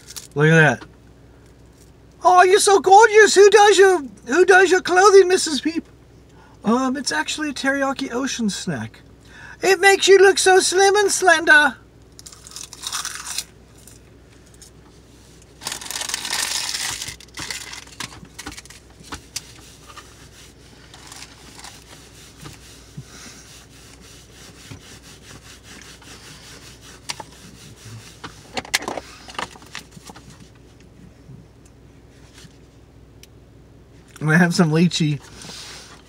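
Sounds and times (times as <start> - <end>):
chewing crisp seaweed: 12.2 - 13.5.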